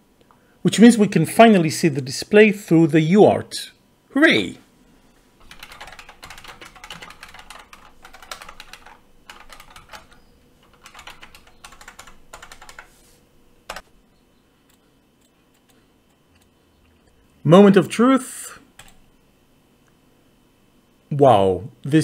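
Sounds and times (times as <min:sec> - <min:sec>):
typing on a keyboard: 0:05.4 - 0:13.0, 0:13.7 - 0:13.9, 0:18.8 - 0:19.0.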